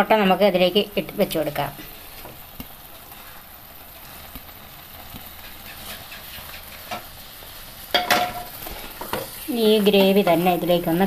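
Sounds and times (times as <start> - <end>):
gravy sizzling in a pan: 0.0 - 11.0
eggs tapping into pan: 2.2 - 2.8, 4.3 - 7.2, 7.9 - 9.3.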